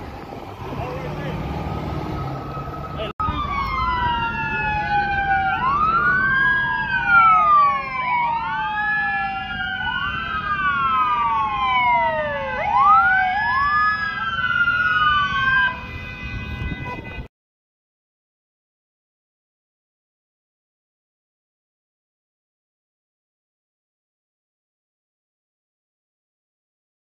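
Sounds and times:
low street rumble: 0:00.0 - 0:17.2
police sirens wailing: 0:00.0 - 0:17.3.

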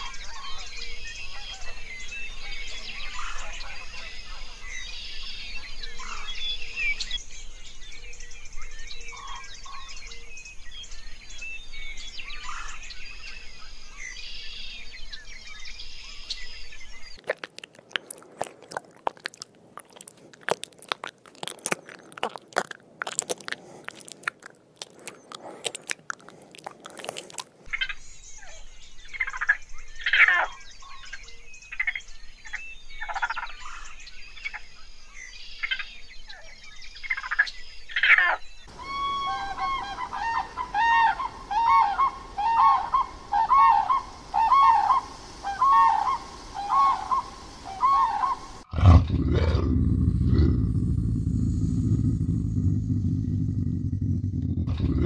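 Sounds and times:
close crunching and clicking: 0:17.2 - 0:27.7
chirping animal calls: 0:38.0 - 0:50.7.

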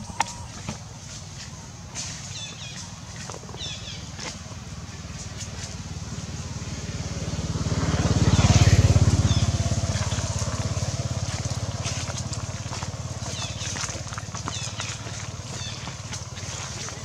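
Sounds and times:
vehicle engine passing by: 0:03.6 - 0:17.0.

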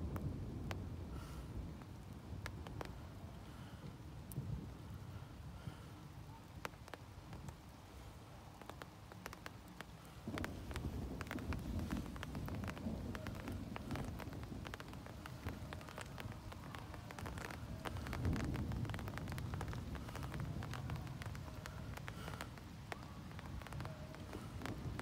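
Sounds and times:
raindrops tapping: 0:00.0 - 0:25.0
thunder rumbling: 0:00.0 - 0:25.0.

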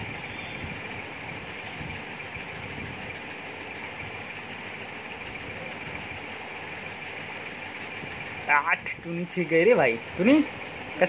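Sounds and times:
mechanical hum: 0:00.0 - 0:11.0.

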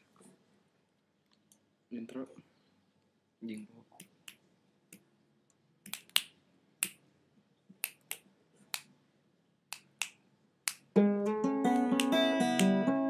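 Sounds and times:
finger snaps: 0:05.8 - 0:07.0, 0:07.8 - 0:08.9, 0:09.7 - 0:10.9, 0:11.8 - 0:12.9
acoustic guitar strumming chords: 0:11.0 - 0:13.0.

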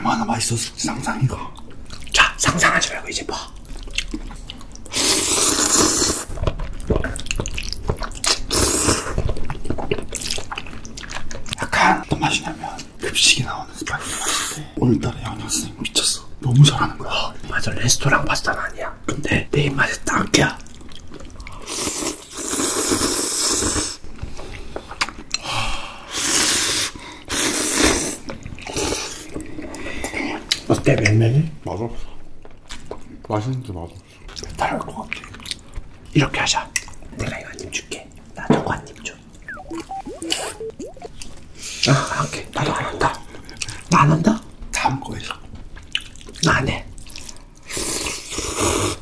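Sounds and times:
wet chewing and lip-smacking: 0:03.6 - 0:04.9, 0:06.4 - 0:11.6, 0:45.8 - 0:47.4
person slurping pasta: 0:04.9 - 0:06.3
slurping noodles: 0:04.9 - 0:06.3, 0:08.2 - 0:09.2, 0:21.6 - 0:24.0.

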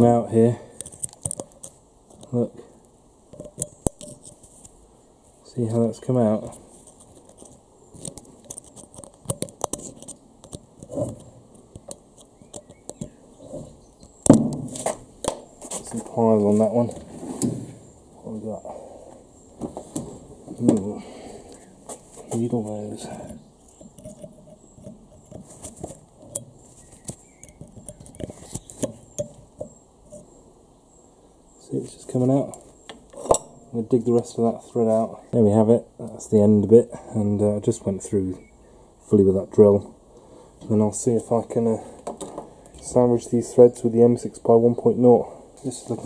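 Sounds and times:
metal pick scraping and clicking: 0:00.8 - 0:02.3, 0:03.3 - 0:04.4, 0:06.8 - 0:14.2, 0:23.1 - 0:30.4
pliers clicking and scraping on metal: 0:03.3 - 0:04.4, 0:06.9 - 0:13.2.

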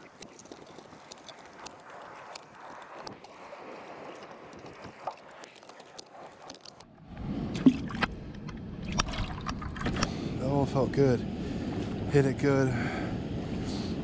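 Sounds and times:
spillway water rushing: 0:00.0 - 0:06.8.

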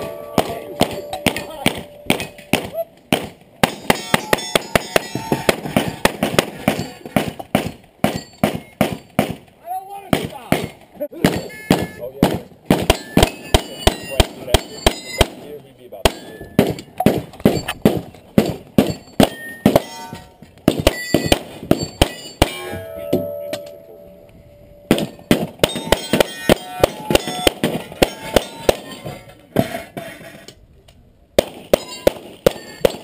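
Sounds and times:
steel targets ringing: 0:00.0 - 0:02.7, 0:03.7 - 0:05.5, 0:12.9 - 0:15.3, 0:18.8 - 0:30.0, 0:31.8 - 0:33.0
pistol shots: 0:00.0 - 0:09.5, 0:10.1 - 0:15.4, 0:20.6 - 0:22.6, 0:24.9 - 0:29.1, 0:31.4 - 0:33.0.

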